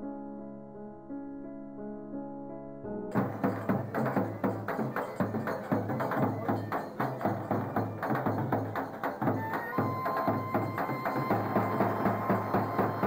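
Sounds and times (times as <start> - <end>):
drum playing dance rhythm: 3.1 - 13.0.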